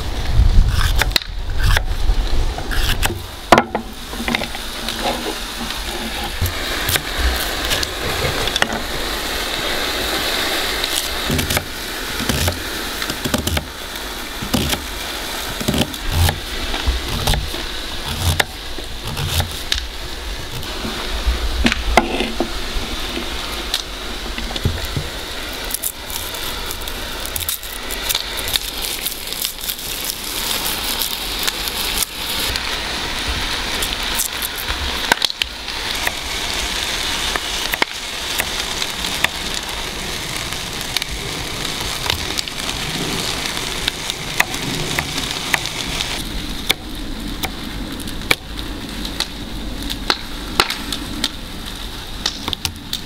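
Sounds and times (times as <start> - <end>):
steady hiss: 0.0 - 53.0
wood fire crackling: 0.0 - 53.0.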